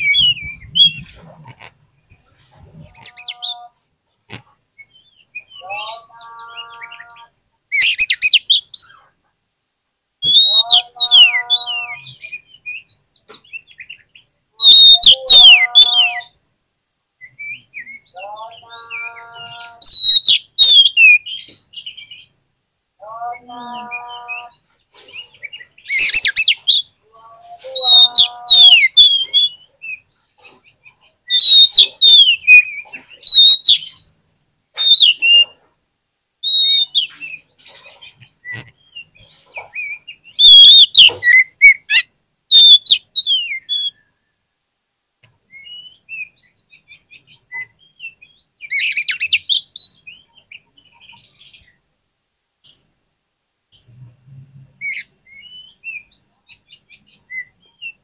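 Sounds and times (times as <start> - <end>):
bird singing whistles: 10.2 - 12.9, 14.6 - 16.4, 19.8 - 21.2, 31.3 - 33.8, 36.4 - 37.1, 39.8 - 44.1, 45.5 - 46.4.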